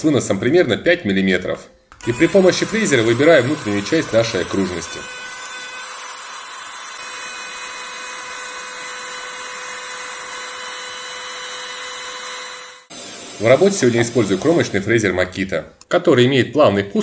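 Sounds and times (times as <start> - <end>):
router whining while cutting wood: 2.0 - 15.2.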